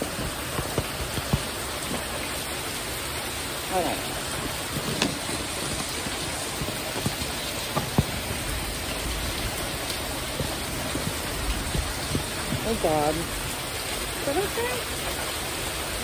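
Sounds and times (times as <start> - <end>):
heavy rain on a metal roof: 0.0 - 16.0
sharp taps: 0.2 - 2.1.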